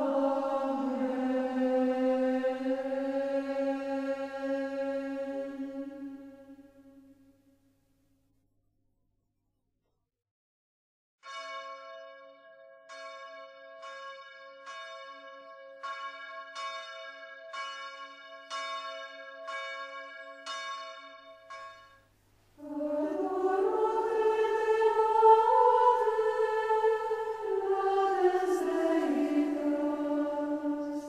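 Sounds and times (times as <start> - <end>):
choir singing chant: 0.0 - 7.0, 22.6 - 31.0
church bells ringing: 11.2 - 22.0, 23.1 - 31.0.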